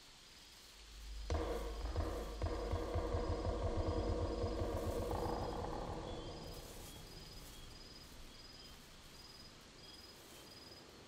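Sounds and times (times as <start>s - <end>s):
soft hiss: 0.0s - 11.0s
deep low rumble: 0.8s - 8.4s
high insect-like chirps: 0.8s - 10.9s.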